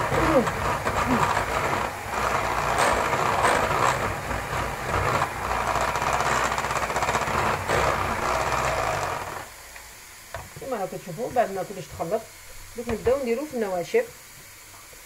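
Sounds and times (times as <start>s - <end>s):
electric hand mixer whisking: 0.0s - 9.5s.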